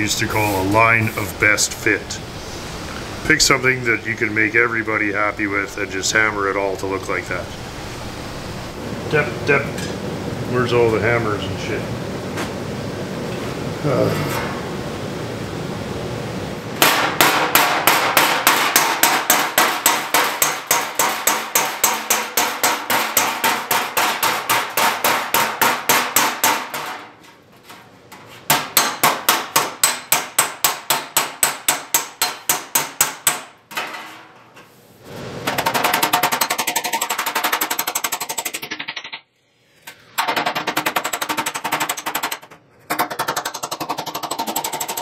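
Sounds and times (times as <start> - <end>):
hammer tapping on sheet metal: 16.8 - 27.2, 28.5 - 34.0, 35.4 - 39.1, 40.2 - 45.0.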